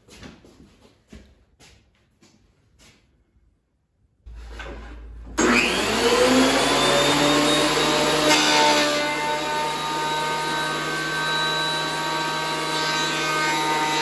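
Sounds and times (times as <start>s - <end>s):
thickness planer motor whine: 4.3s - 14.0s.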